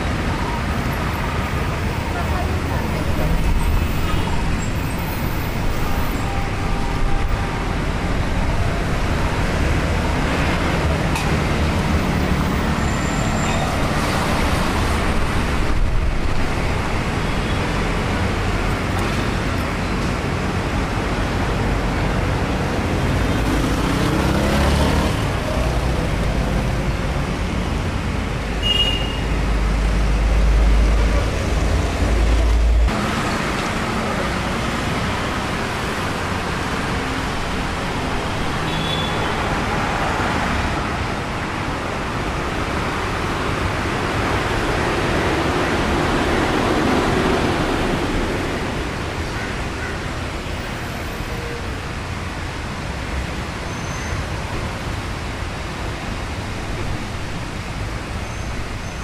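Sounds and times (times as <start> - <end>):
roar of passing traffic: 7.7 - 51.0.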